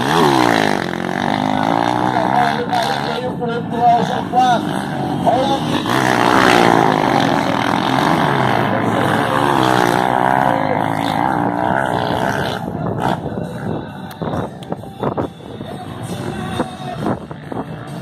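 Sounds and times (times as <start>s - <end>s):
motocross bikes revving past: 0.0s - 13.8s.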